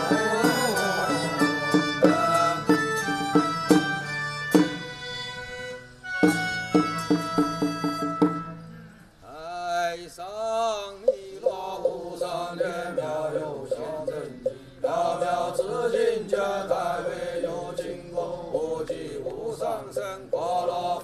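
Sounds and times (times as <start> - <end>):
men chanting in unison: 0.0 - 2.7, 9.4 - 21.0.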